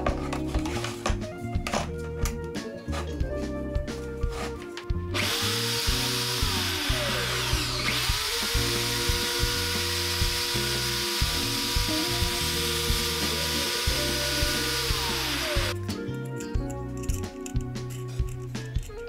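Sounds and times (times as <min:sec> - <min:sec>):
background music: 0:00.0 - 0:19.0
electric drill whining: 0:05.1 - 0:15.8.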